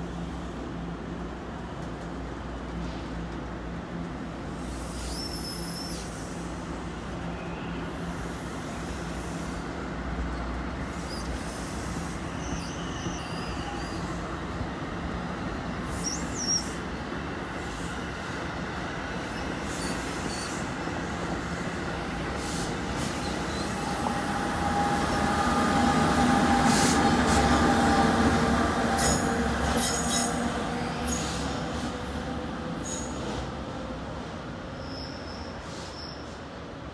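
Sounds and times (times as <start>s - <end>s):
train wheel and rail rumble: 0.0s - 36.9s
high wheel squeals: 10.9s - 14.2s.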